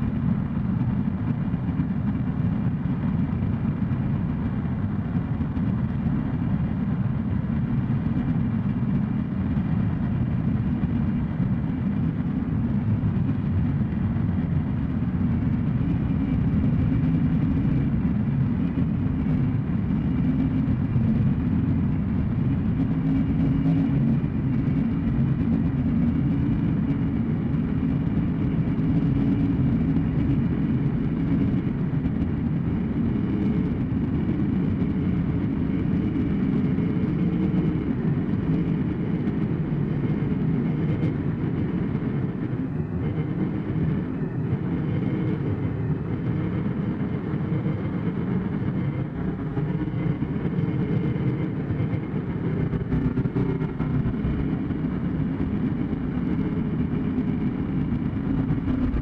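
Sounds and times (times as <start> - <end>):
harsh noise drone: 15.2 - 59.0.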